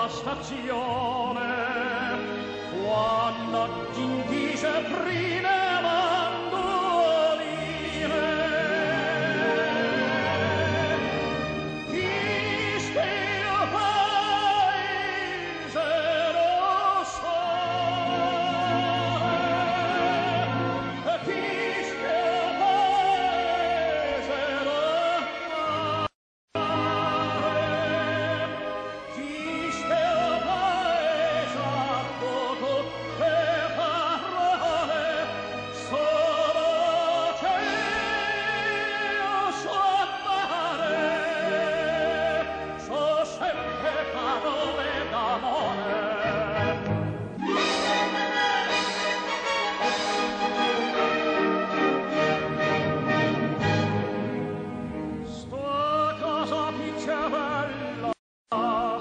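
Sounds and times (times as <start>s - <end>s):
operatic solo singing with vibrato: 0.0s - 54.0s, 55.2s - 59.0s
orchestral accompaniment: 0.0s - 59.0s
instrumental accompaniment: 40.8s - 59.0s.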